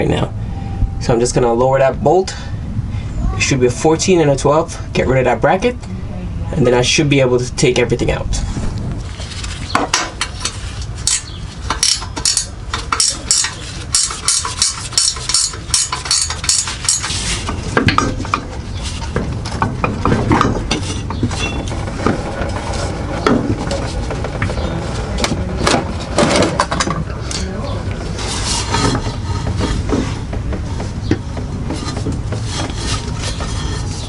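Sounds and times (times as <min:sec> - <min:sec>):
metal knocks: 0:09.7 - 0:34.0.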